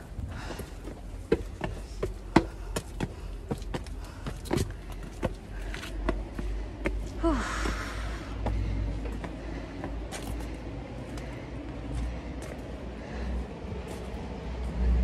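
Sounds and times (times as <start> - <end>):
low rumble of wind or traffic: 0.0 - 15.0
footsteps on hard path: 0.1 - 14.8
person gasping or sighing: 7.2 - 8.4.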